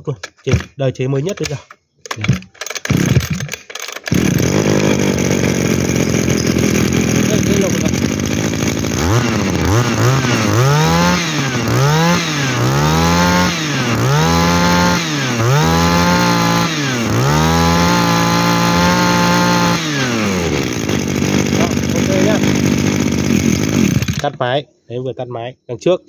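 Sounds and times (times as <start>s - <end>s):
brush cutter engine revving: 2.1s - 24.4s.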